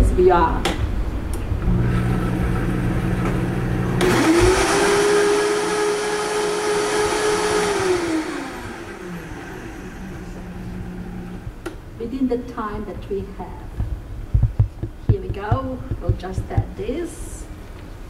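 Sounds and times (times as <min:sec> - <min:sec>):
blender motor whirring: 0:01.6 - 0:11.4.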